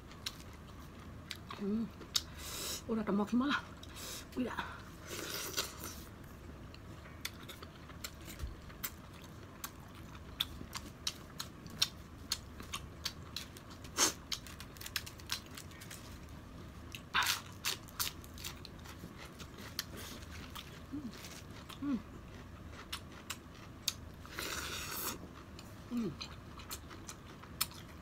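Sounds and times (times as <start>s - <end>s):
chewing with mouth clicks: 16.9s - 28.0s.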